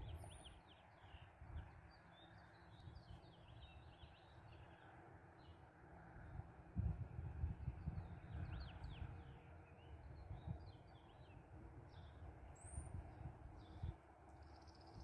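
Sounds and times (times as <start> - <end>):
wind rumble on microphone: 0.0 - 1.9, 6.2 - 15.0
faint birds chirping: 0.0 - 6.4.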